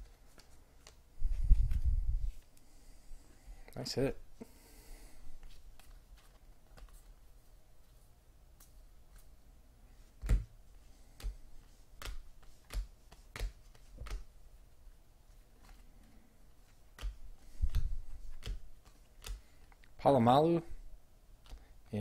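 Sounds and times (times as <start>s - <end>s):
trading cards clicking: 16.9s - 19.8s.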